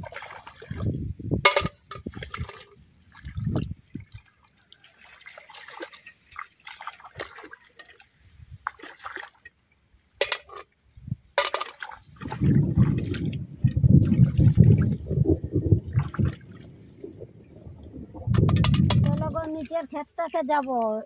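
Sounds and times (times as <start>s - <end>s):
hands splashing in shallow water: 2.0s - 9.5s
low rumble: 12.2s - 19.4s.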